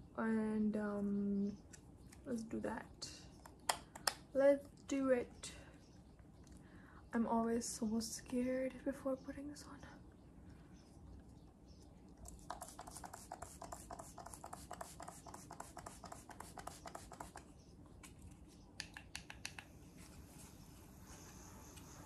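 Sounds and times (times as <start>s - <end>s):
spray bottle spritzes: 12.4s - 17.4s.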